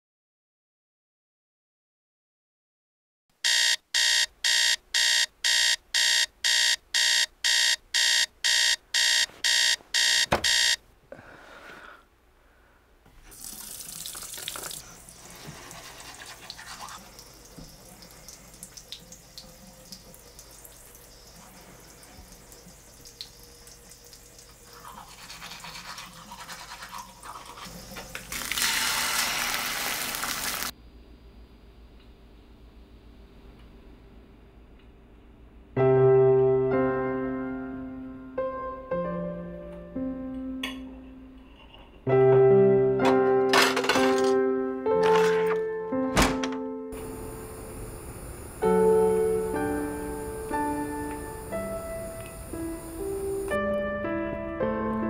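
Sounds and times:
alarm clock beeping: 3.4s - 10.8s
egg sizzling in a pan: 13.3s - 30.7s
toothbrush scrubbing teeth: 14.4s - 17.4s, 24.6s - 27.9s.

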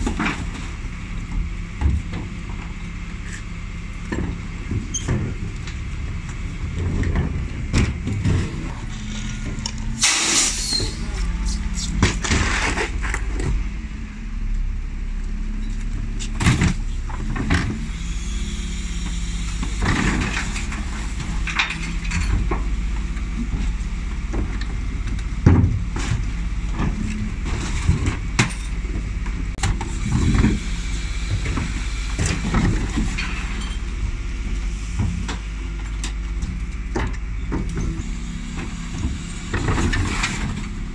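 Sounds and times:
truck diesel engine revving: 8.2s - 14.4s
loud hiss: 10.0s - 12.0s
bins banging and clattering: 10.0s - 13.6s.

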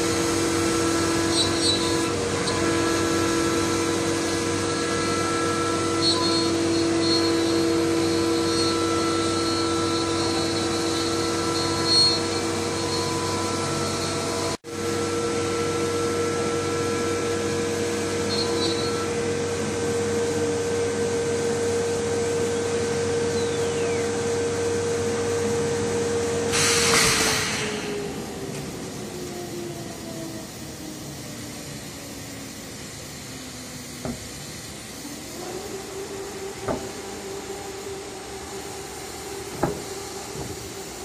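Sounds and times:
router spindle motor whine: 0.0s - 26.5s, 27.7s - 41.0s
short burst of hiss: 26.5s - 28.1s.

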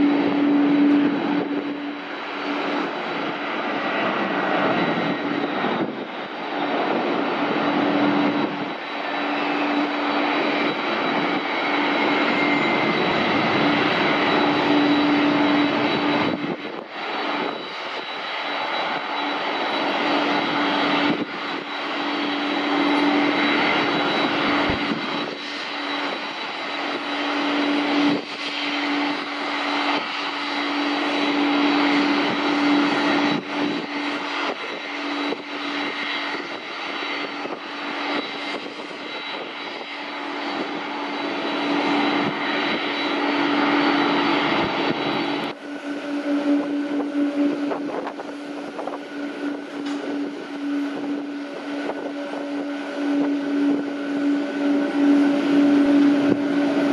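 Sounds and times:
jet engines whining drone: 0.0s - 56.9s.

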